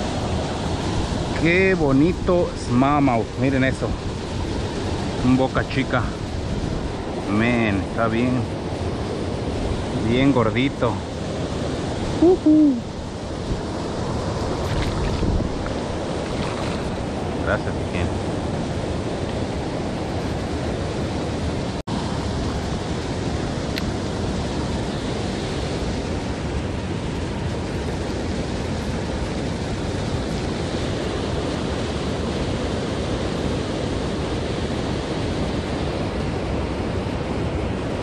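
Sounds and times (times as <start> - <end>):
river water rushing over weir: 0.0 - 38.0
wind buffeting microphone: 11.2 - 38.0.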